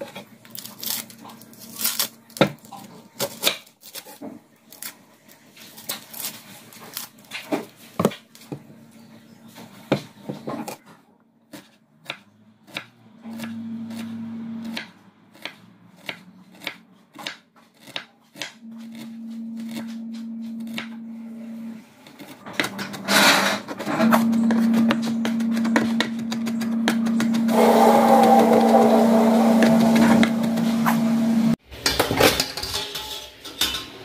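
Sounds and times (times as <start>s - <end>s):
steady low hum: 23.6s - 31.6s.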